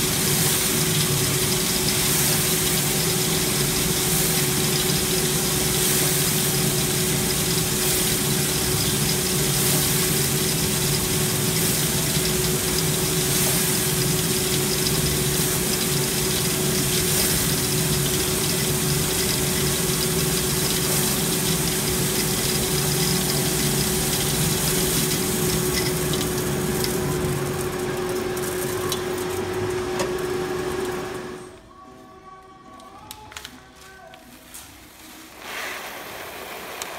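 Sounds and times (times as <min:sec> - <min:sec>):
machine humming: 0:00.0 - 0:31.6
coffee beans being swept: 0:34.4 - 0:36.9.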